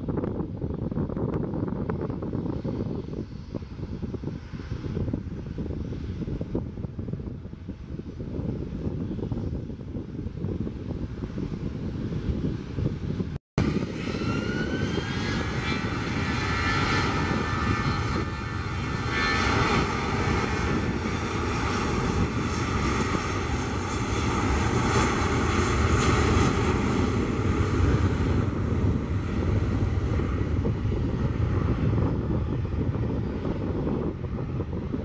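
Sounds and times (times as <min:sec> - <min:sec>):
jet engines roaring: 0:11.0 - 0:35.0.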